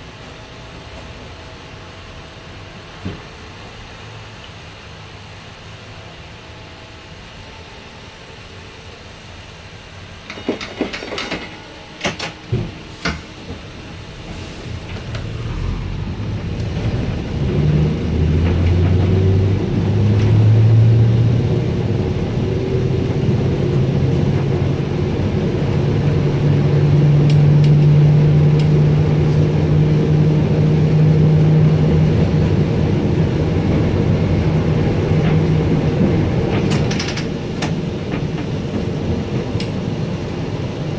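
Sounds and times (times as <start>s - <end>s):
streetcar motor hum: 0.0s - 40.9s
sharp clicks and knocks: 10.3s - 13.6s, 36.5s - 38.9s.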